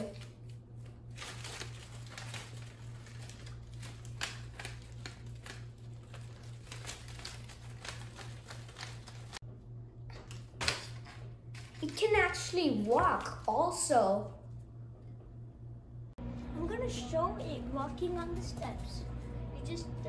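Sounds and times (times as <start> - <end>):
paper rustling and crinkling: 0.0 - 9.4, 10.3 - 13.9
steady low hum: 0.0 - 20.0.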